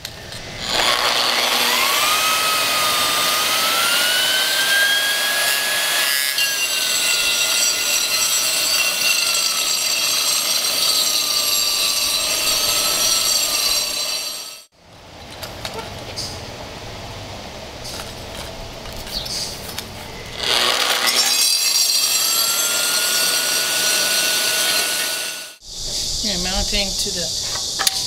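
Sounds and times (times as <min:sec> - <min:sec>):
grinding disc on concrete: 0:00.0 - 0:16.5, 0:17.8 - 0:25.6
concrete grinder motor whine: 0:00.1 - 0:14.6, 0:22.5 - 0:25.6.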